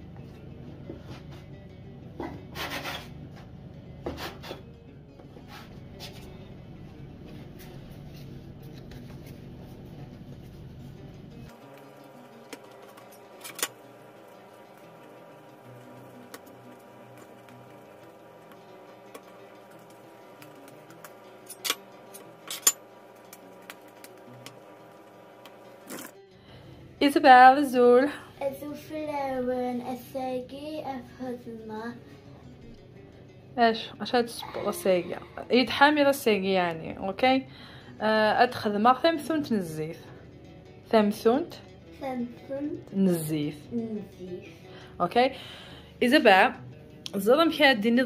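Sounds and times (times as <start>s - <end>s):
rubbing and knocking sounds: 2.2s - 3.2s.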